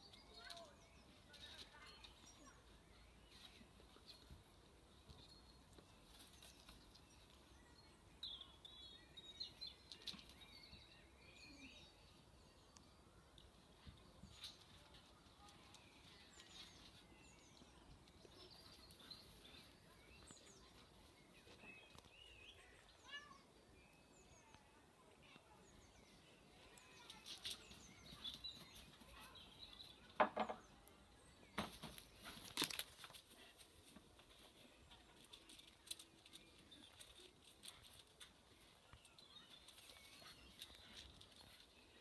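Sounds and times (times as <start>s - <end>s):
birds chirping faintly: 0.0s - 42.0s
knocks and rustles: 30.1s - 30.7s, 31.5s - 33.2s.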